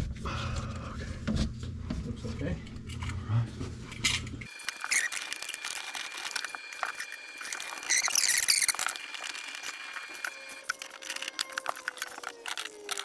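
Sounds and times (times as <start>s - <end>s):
gloved hands rustling: 4.5s - 13.0s.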